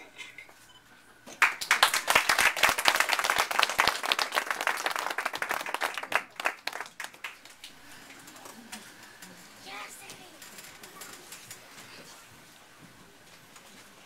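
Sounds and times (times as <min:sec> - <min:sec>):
audience applauding: 0:01.4 - 0:08.5.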